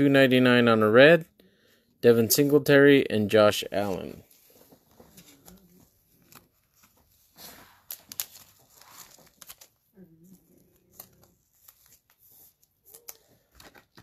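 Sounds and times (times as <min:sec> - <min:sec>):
plastic wrappers crinkling: 0:04.0 - 0:14.0.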